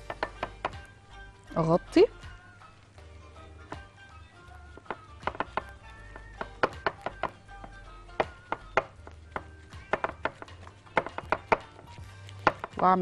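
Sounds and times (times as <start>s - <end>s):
fingers tapping dough in glass dish: 0.0s - 0.9s, 4.7s - 13.0s
background music: 0.0s - 13.0s.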